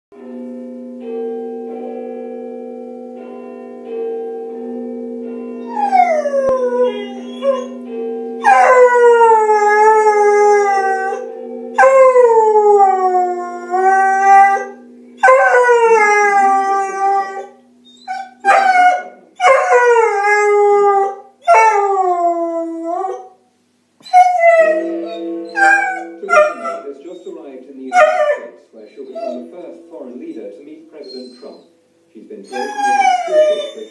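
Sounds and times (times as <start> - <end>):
dog howling: 5.7 - 7.7, 8.4 - 23.3, 24.1 - 27.3, 27.9 - 29.5, 32.5 - 33.9.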